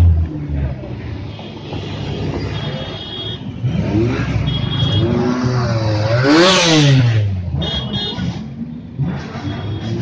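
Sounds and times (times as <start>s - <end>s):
motorcycle engine revving: 3.5s - 10.0s.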